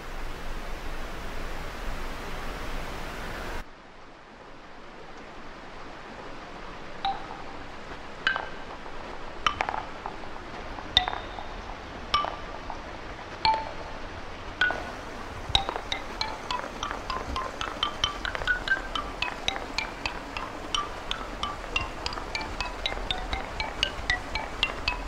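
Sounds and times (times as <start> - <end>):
noisy rush: 0.0 - 25.0
wooden xylophone notes: 7.0 - 25.0.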